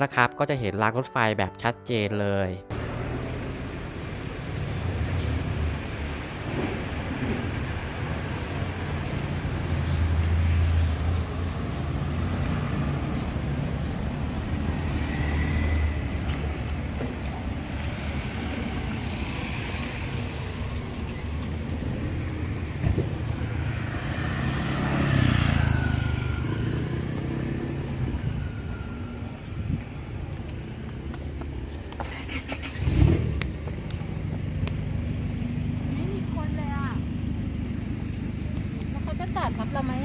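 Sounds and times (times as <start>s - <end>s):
vehicle engines passing: 2.7s - 40.0s.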